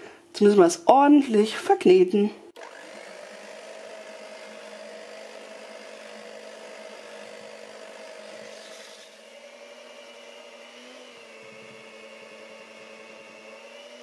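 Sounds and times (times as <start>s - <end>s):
electric hand mixer whining: 2.6s - 14.0s.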